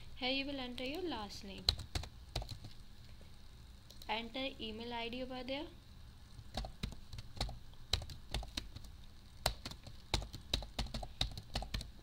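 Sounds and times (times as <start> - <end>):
keyboard typing: 0.7 - 2.8, 6.4 - 12.0.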